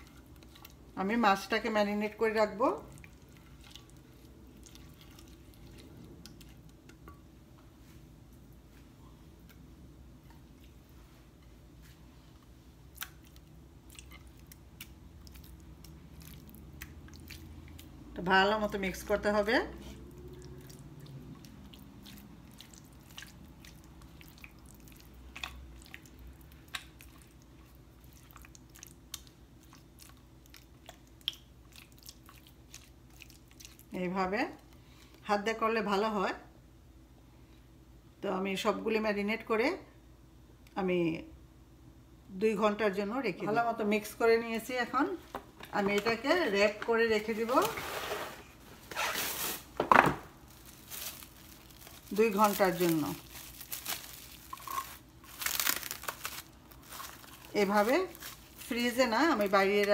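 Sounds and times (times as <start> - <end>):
spatula squishing thick marinade: 2.3 - 6.8, 19.8 - 33.9.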